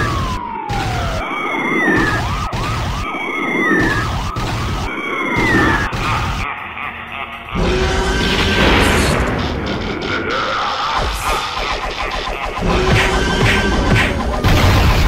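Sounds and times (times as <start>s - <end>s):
cartoon police siren: 0.0s - 6.7s, 7.6s - 15.0s
rushing rumbling noise: 7.6s - 15.0s.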